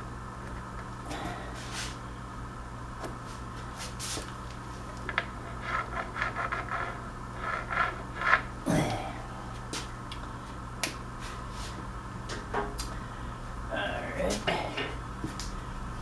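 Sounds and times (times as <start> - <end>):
marker scratching on wood: 5.2 - 8.5.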